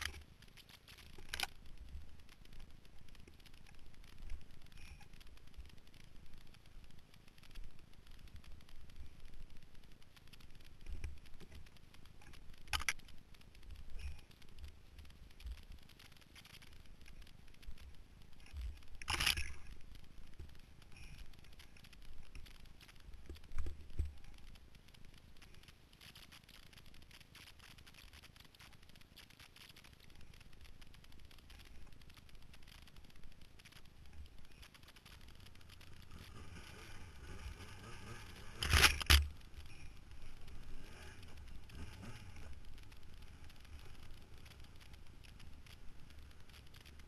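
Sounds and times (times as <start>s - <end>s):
muffled snowmobile rumbling: 30.1s - 47.0s.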